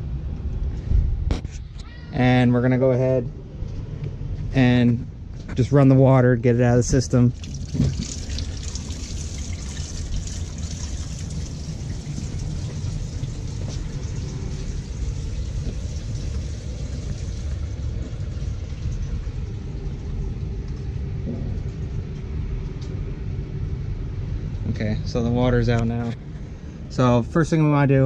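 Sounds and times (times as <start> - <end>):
steady low rumble: 0.0 - 28.0
faucet water running into sink: 7.3 - 19.5.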